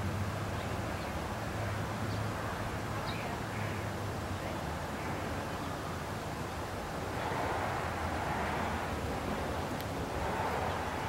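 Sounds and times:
even wash of noise: 0:00.0 - 0:11.0.

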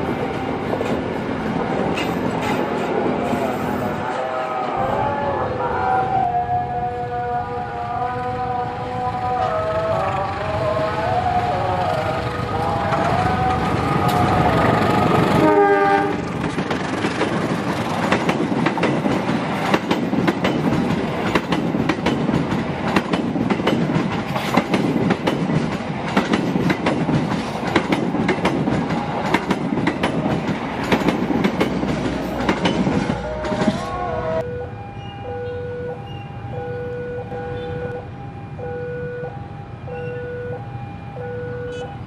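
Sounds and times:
train wheels clattering: 0:00.0 - 0:03.5, 0:16.0 - 0:33.9
train horn: 0:03.3 - 0:16.4, 0:33.0 - 0:39.4.

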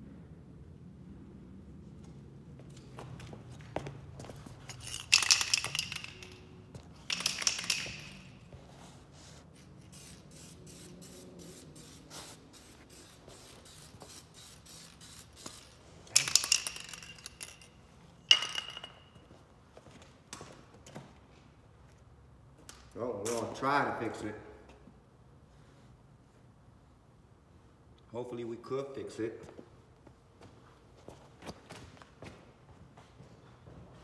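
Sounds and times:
aerosol spray can hissing: 0:09.7 - 0:15.8.

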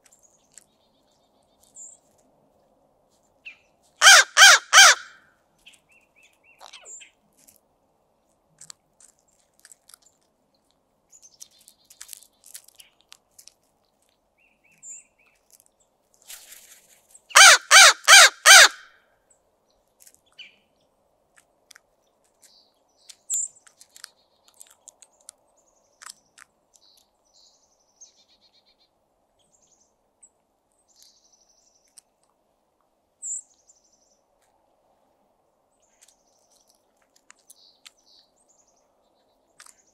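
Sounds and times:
crow cawing: 0:04.0 - 0:05.2, 0:17.4 - 0:18.9.

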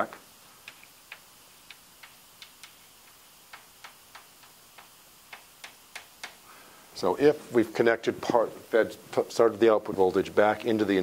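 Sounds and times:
chalk clicking on blackboard: 0:00.6 - 0:06.4.

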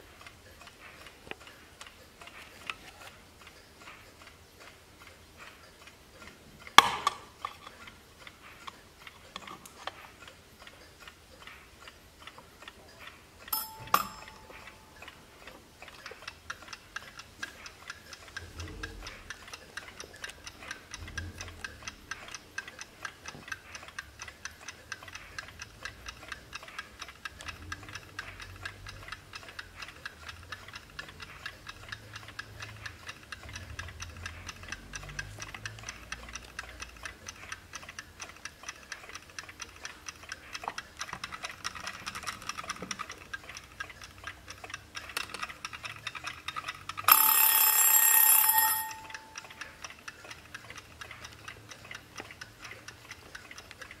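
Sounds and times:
clockwork timer ticking: 0:00.0 - 0:54.0
timer bell ringing: 0:13.5 - 0:15.0, 0:47.1 - 0:49.6.

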